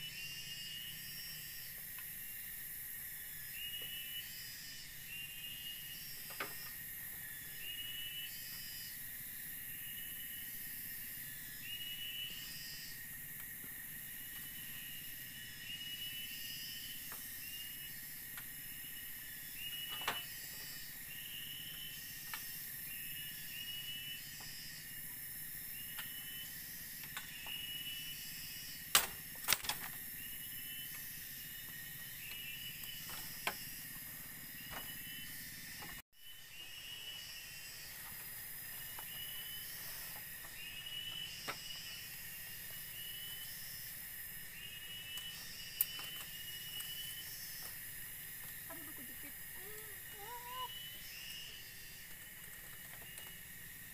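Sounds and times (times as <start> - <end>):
forest insects chirping: 0.0 - 53.9.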